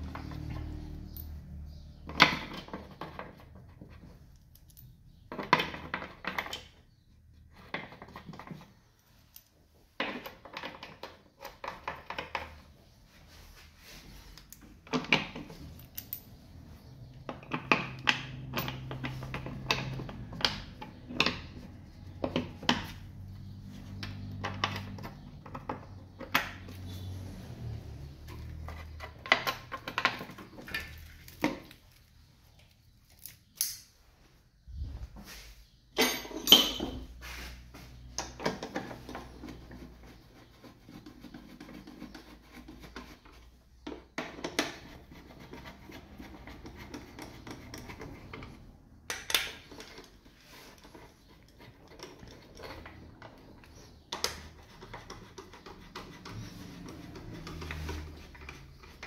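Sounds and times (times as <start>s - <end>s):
hand tools clicking and clattering: 35.9s - 37.2s, 43.0s - 59.0s.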